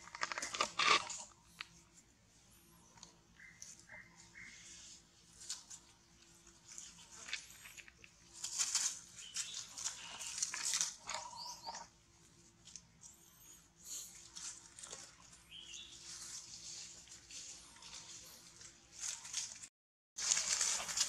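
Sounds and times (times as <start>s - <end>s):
dry leaves rustling and crunching: 4.3s - 11.8s, 14.1s - 21.0s.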